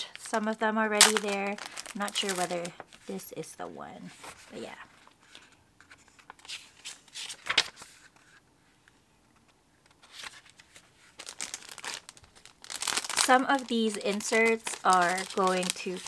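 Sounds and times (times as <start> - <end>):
cellophane sleeves crinkling: 0.0 - 3.3, 9.9 - 16.0
notebook pages flipping: 4.1 - 8.4, 9.3 - 16.0.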